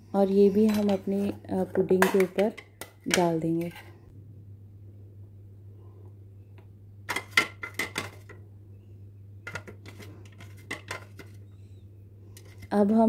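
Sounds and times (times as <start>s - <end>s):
low steady hum: 0.0s - 13.0s
kitchenware clicking and clinking: 0.5s - 3.8s, 7.1s - 8.4s, 9.4s - 11.4s.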